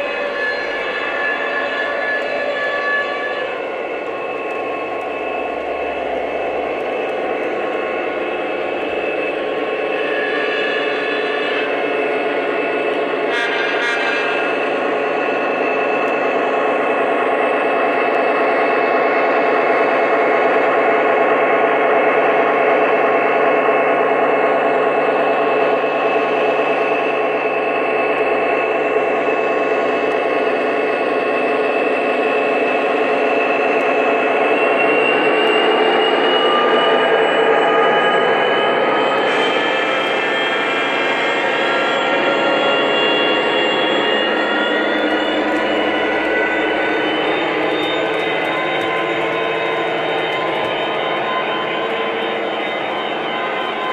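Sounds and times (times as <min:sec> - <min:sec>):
model train running noise: 0:00.0 - 0:53.9.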